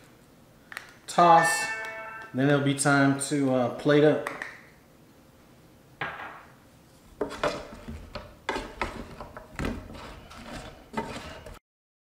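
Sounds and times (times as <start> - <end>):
wooden spatula scraping a pan: 7.2 - 11.6.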